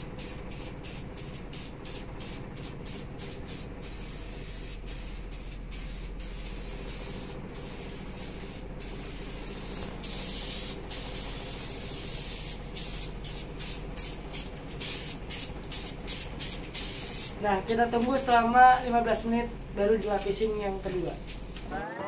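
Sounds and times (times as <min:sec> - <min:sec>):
spray paint can hissing: 0:00.0 - 0:17.4
steady low hum: 0:00.0 - 0:21.8.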